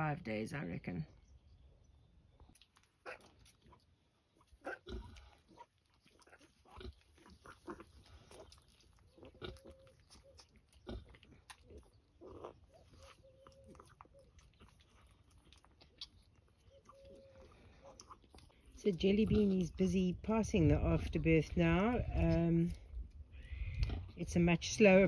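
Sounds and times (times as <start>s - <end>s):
piglets suckling: 2.5s - 25.0s
piglet squeaks: 9.1s - 15.1s, 15.8s - 18.4s.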